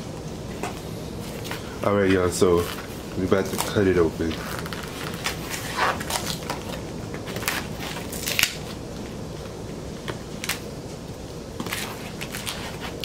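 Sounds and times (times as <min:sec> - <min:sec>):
cardboard crackling: 0:01.2 - 0:10.7, 0:11.6 - 0:13.0.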